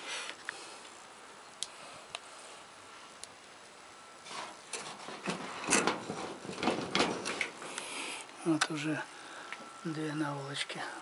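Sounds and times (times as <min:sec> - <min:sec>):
wood fire crackling: 0:00.0 - 0:11.0.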